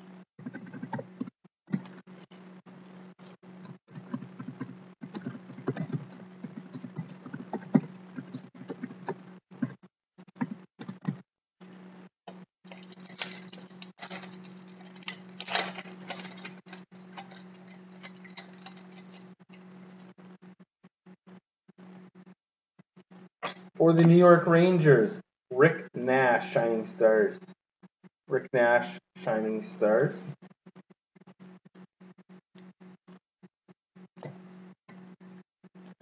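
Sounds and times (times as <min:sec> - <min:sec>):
low electrical hum: 0:00.0 - 0:20.6, 0:23.0 - 0:27.6, 0:28.3 - 0:30.8
foil wrapper crinkling: 0:12.6 - 0:20.0.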